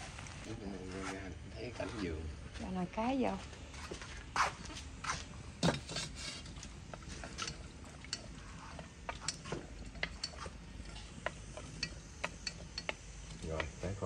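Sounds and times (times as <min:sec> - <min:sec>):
kitchen pots and utensils clinking: 0:05.6 - 0:13.6.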